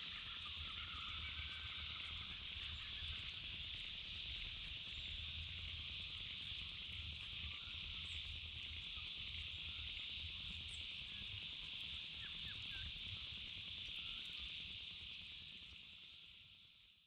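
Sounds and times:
steady high-pitched hiss: 0.0 - 17.0
faint bird chirps: 10.7 - 14.5.

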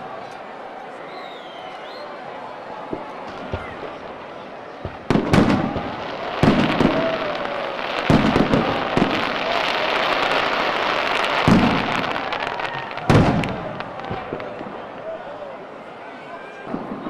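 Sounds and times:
fireworks booming: 2.9 - 15.2, 16.7 - 17.0
crackling of sparks: 4.9 - 14.6.

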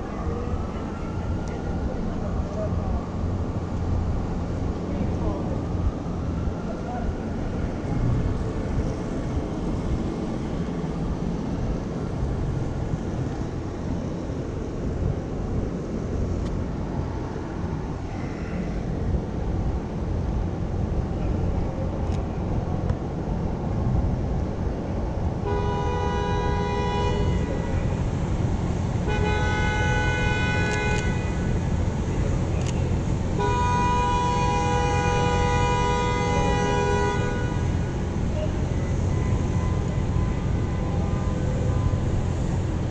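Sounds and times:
city traffic rumble: 0.0 - 42.9
vehicle horn honking: 25.4 - 27.9, 29.0 - 31.6, 33.4 - 37.8.

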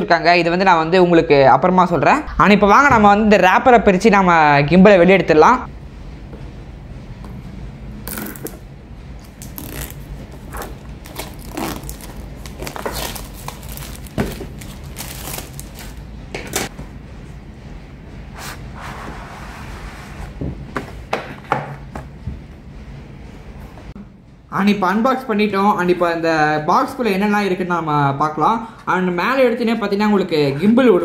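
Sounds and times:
plastic crinkling: 9.3 - 16.0
plastic shrink-wrap tearing: 9.3 - 16.0.

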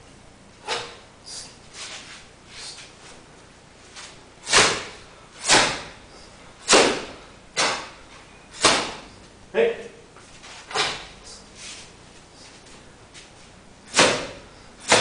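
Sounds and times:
hand slapping bare body: 8.6 - 9.0.

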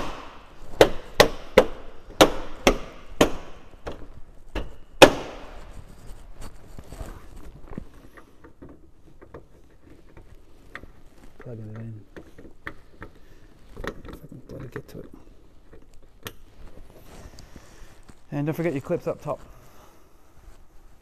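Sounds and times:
small clicks and rustling: 5.6 - 19.4.

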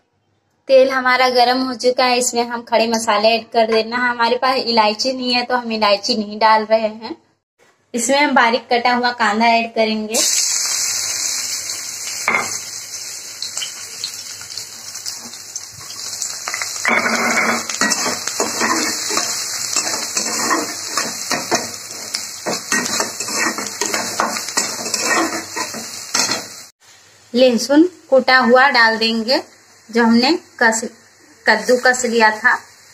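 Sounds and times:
onions sizzling in hot oil: 10.1 - 32.9
metal spatula scraping a pan: 15.2 - 26.6.

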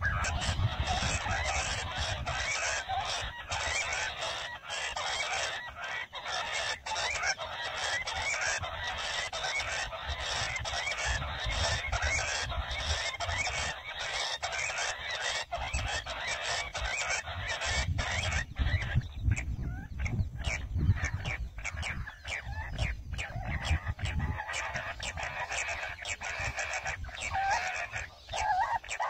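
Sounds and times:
quail calls through loudspeaker: 0.0 - 29.0.

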